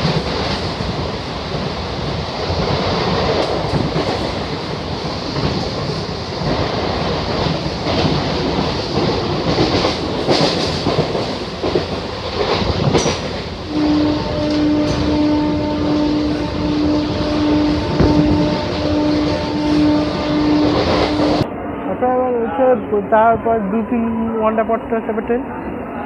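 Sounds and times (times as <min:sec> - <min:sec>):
train carriage rumble and rattle: 0:00.0 - 0:23.8
wheels clattering over rail joints: 0:02.5 - 0:13.6
train horn: 0:13.6 - 0:21.4.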